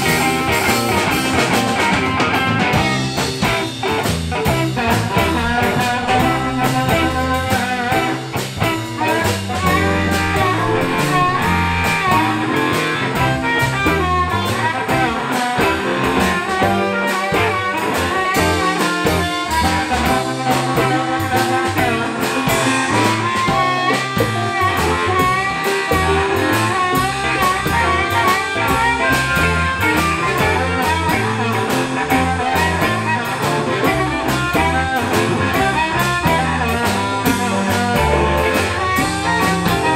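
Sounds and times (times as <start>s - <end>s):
blues band playing: 0.0s - 39.9s
harmonica lead: 0.0s - 39.9s.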